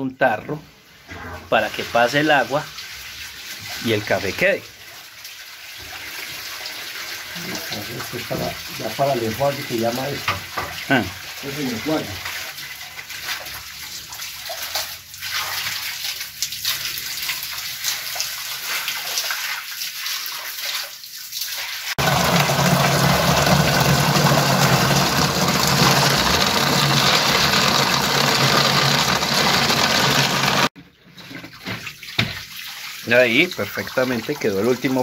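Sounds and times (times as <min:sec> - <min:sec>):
hose water splashing: 0:01.5 - 0:30.7, 0:31.3 - 0:35.0
water gushing into plastic can: 0:22.0 - 0:30.7.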